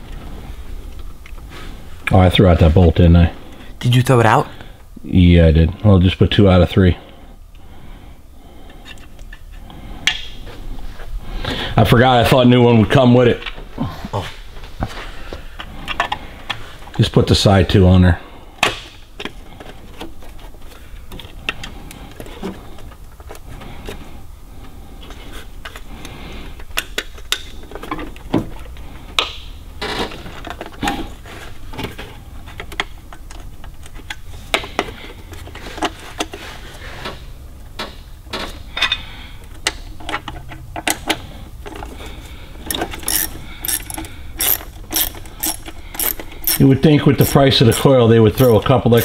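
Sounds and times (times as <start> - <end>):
hand ratchet clicking: 42.7 - 49.0.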